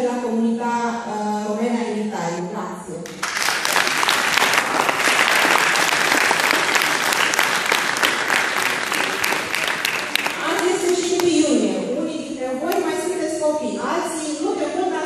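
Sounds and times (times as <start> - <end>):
audience applauding: 3.1 - 11.4.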